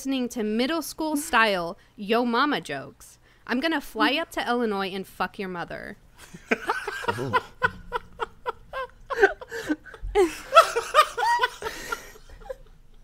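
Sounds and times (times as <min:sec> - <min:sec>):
people laughing: 0:06.2 - 0:12.8.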